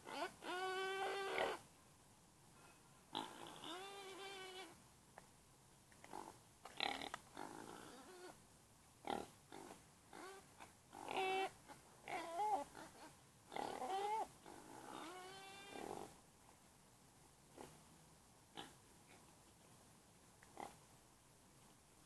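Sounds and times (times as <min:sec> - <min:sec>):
pigs squealing: 0:00.0 - 0:01.6, 0:03.2 - 0:04.7, 0:11.0 - 0:16.1
pig snorts: 0:00.1 - 0:01.6, 0:03.1 - 0:04.7, 0:06.1 - 0:08.4, 0:09.0 - 0:11.5, 0:12.1 - 0:16.2, 0:17.5 - 0:17.8, 0:18.5 - 0:18.8.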